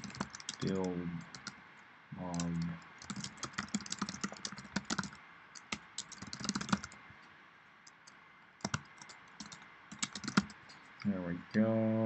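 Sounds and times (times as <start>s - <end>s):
typing on computer keyboard: 0.0s - 1.6s, 2.3s - 7.0s, 7.9s - 10.6s.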